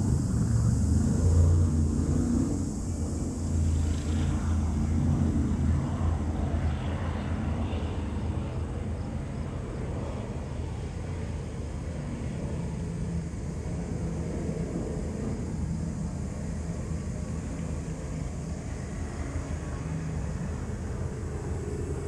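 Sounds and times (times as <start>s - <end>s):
diesel locomotive engine humming: 0.0s - 6.3s.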